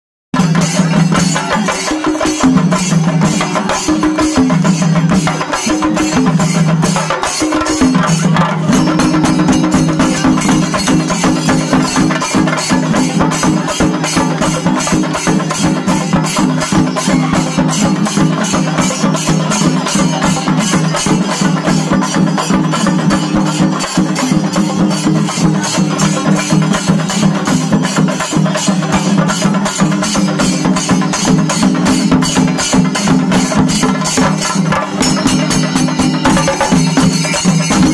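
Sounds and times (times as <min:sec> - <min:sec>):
drums played fast: 0:00.3 - 0:37.9
cymbals: 0:00.4 - 0:37.9.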